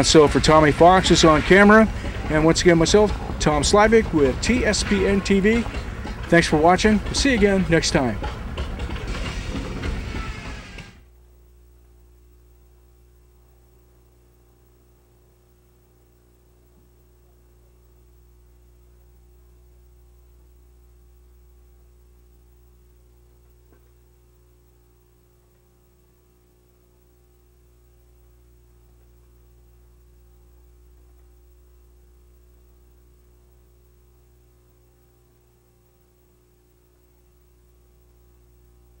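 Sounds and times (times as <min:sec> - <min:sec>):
steady high tone: 0:00.0 - 0:08.3
faint low hum: 0:00.0 - 0:39.0.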